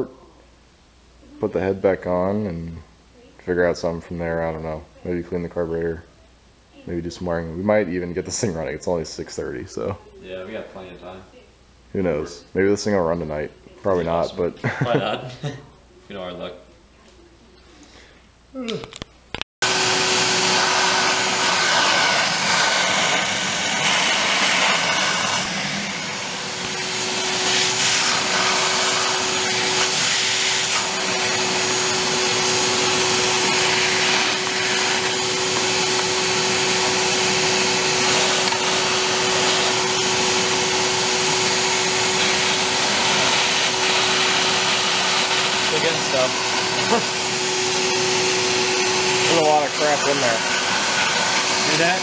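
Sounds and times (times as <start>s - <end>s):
vacuum cleaner running: 19.6s - 52.0s.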